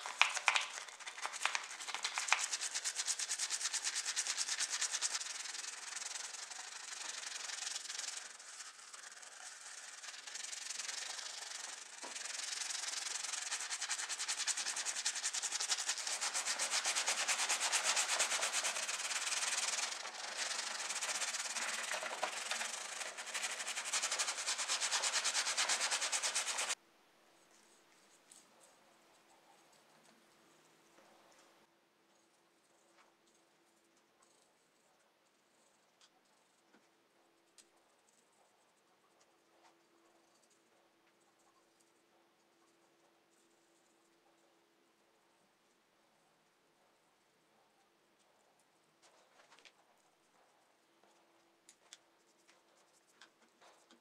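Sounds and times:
wire brush scrubbing metal: 0:02.6 - 0:26.8.

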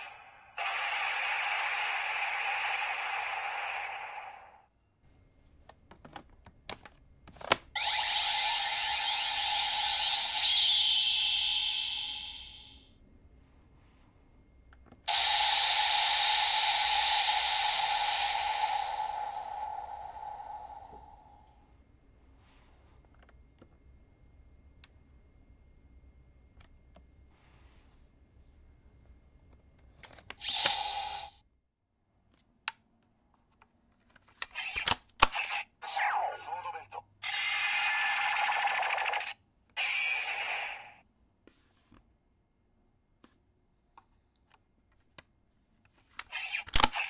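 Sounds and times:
toy speaker explosion effect: 0:00.0 - 0:04.6, 0:07.8 - 0:12.8, 0:15.1 - 0:21.4, 0:30.4 - 0:31.3, 0:34.6 - 0:41.0.

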